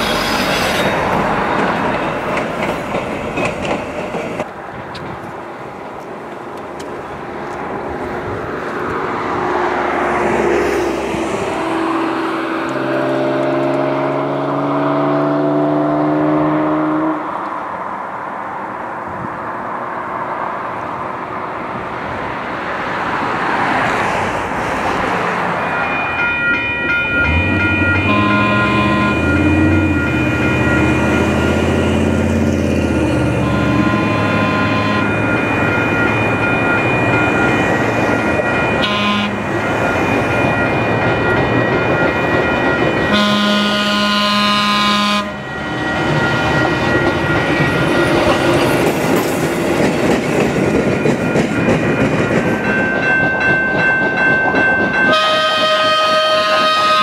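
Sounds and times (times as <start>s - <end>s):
crossing bells ringing: 0.0s - 3.6s, 23.4s - 57.0s
streetcar horn blasts: 27.3s - 31.6s, 33.2s - 35.3s, 38.8s - 39.7s, 43.1s - 45.6s, 55.1s - 57.0s.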